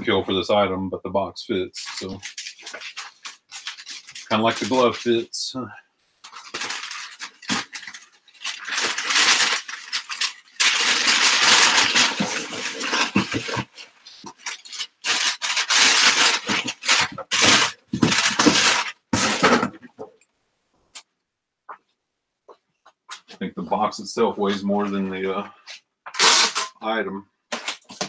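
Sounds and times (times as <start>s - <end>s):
packing paper crinkling: 1.8s - 5.2s, 6.2s - 19.6s.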